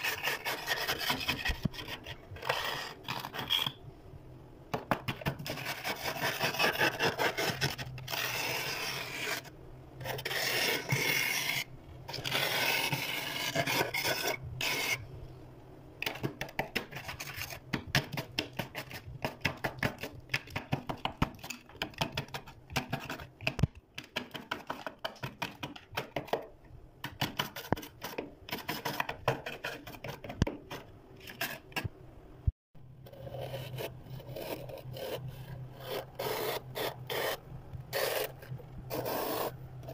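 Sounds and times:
plastic scraper scraping frost: 0:00.0 - 0:03.8, 0:05.4 - 0:15.0, 0:33.1 - 0:39.9.

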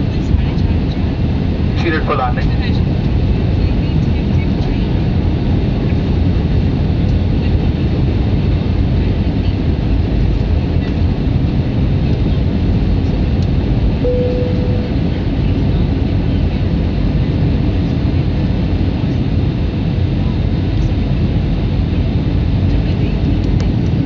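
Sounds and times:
jet engine cabin noise: 0:00.0 - 0:24.0
brief single tone: 0:14.0 - 0:15.1.

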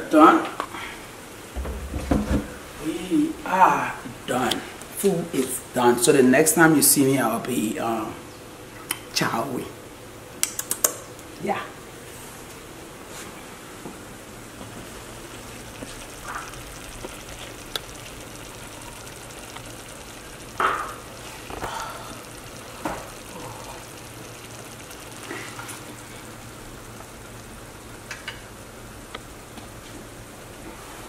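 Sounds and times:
pot sizzling on stove: 0:13.6 - 0:31.0.

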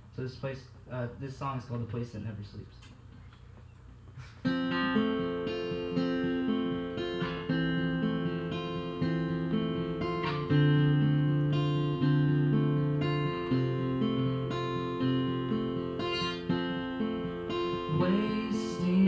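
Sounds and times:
acoustic guitar chords strummed: 0:04.4 - 0:19.0.

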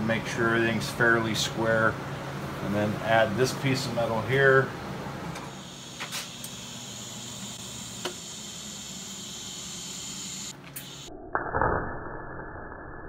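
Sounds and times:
low electrical hum: 0:00.0 - 0:11.1
welding arc hissing: 0:05.5 - 0:11.1.

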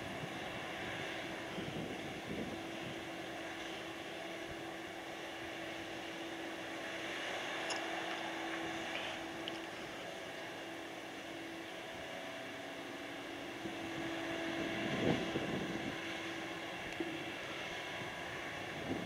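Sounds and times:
distant crane machinery drone: 0:00.0 - 0:19.0
steady hum tone: 0:00.0 - 0:19.0.

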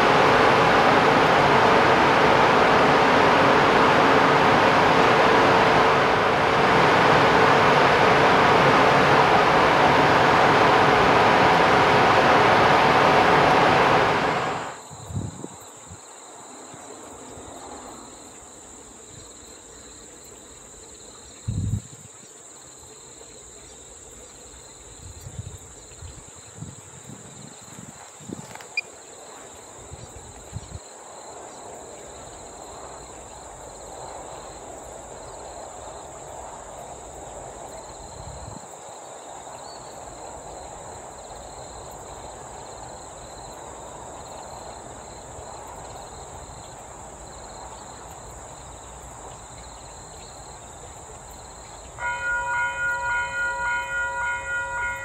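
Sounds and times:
electric locomotive running: 0:00.0 - 0:15.3, 0:50.1 - 0:55.0.

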